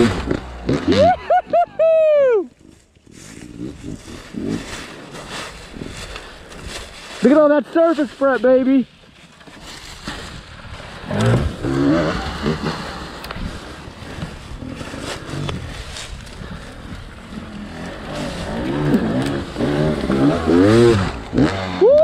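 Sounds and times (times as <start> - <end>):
dirt bike engine revving: 0.0 - 1.5, 10.8 - 13.8, 17.3 - 22.0.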